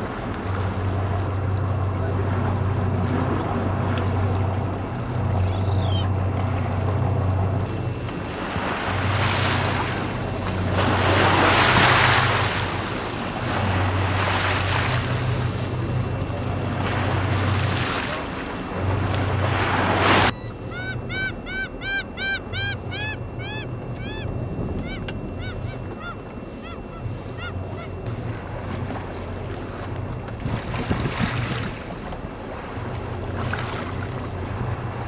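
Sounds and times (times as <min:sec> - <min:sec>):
boat engine humming: 0:00.0 - 0:35.0
sea noise: 0:00.0 - 0:35.0
bird honking: 0:05.2 - 0:06.9, 0:20.3 - 0:28.1
wind buffeting microphone: 0:30.0 - 0:32.0.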